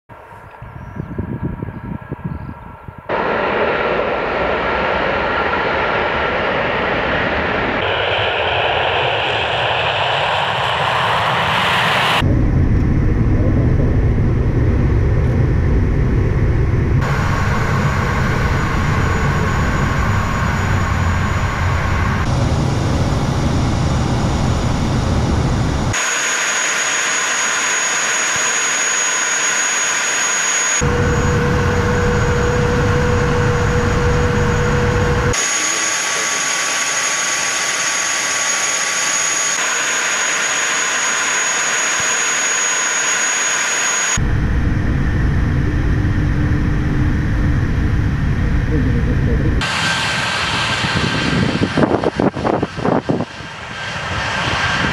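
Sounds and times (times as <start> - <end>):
heavy low rumble: 0.1 - 26.0, 30.8 - 35.4, 44.2 - 54.9
in-flight engine noise with whine: 0.1 - 54.9
jet engines at takeoff: 0.1 - 54.9.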